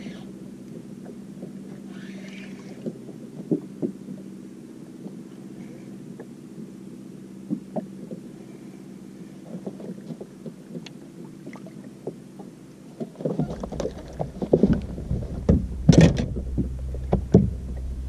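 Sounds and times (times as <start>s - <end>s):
steady low hum: 0.0s - 18.0s
sharp knocks on boat: 2.8s - 4.3s, 11.5s - 17.9s
water splashing: 9.5s - 12.2s, 13.0s - 18.0s.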